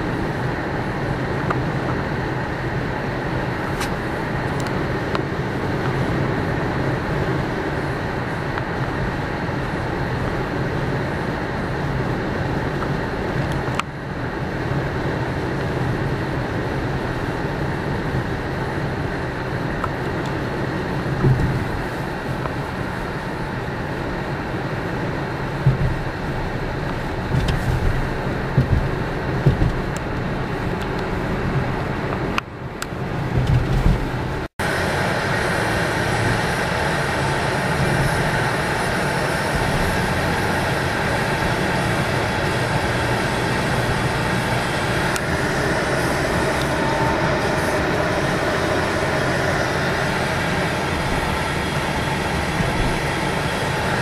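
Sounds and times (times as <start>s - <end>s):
car engine and tyre noise: 0.0s - 54.0s
light bumps: 26.9s - 30.2s.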